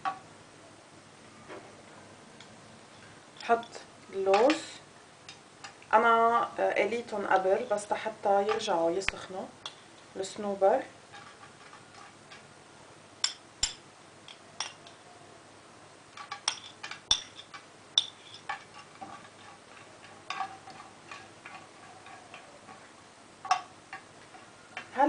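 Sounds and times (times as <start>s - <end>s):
metal spoon clinking on plate and pan: 13.2s - 15.0s, 16.1s - 24.9s.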